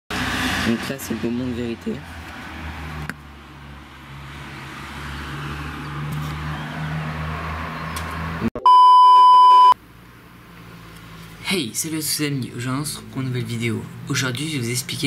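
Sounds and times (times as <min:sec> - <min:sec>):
high-pitched electronic beep: 0:08.6 - 0:09.8.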